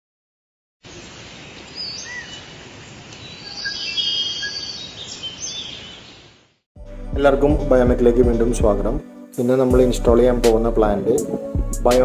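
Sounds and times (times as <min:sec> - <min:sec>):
steady background hiss: 0:00.9 - 0:06.4
birds chirping and whistling: 0:01.8 - 0:02.5, 0:03.2 - 0:06.3.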